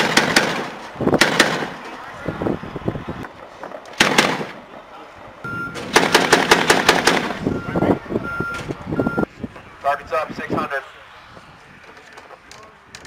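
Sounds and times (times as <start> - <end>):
grenade launcher firing: 0.0 - 1.8, 4.0 - 4.6, 5.8 - 7.4.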